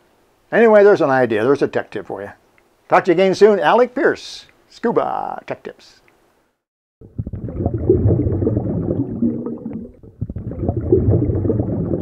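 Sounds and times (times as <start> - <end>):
low muffled gurgling rumble: 7.0 - 12.0.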